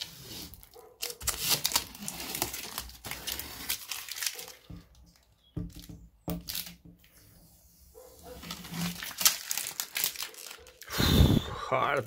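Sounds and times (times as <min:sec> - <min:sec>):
plastic film peeling and crackling: 0:00.0 - 0:10.9.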